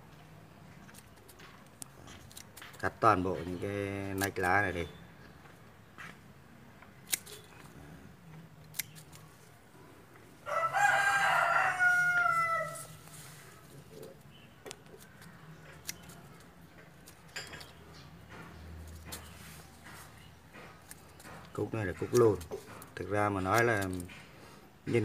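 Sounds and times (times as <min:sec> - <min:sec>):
pruning shears snipping: 0:00.9 - 0:04.8, 0:06.9 - 0:07.8, 0:08.4 - 0:09.6, 0:11.1 - 0:24.3
rooster crowing: 0:10.4 - 0:13.1.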